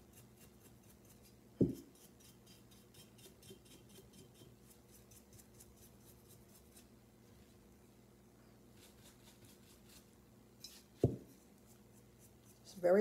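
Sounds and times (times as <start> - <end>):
paintbrush bristles scratching: 10.8 - 13.0.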